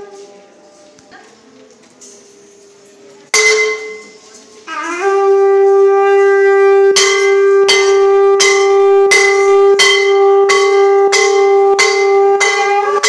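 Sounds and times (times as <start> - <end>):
bell struck: 3.4 - 4.3, 6.8 - 13.0
conch shell blowing: 3.4 - 13.0.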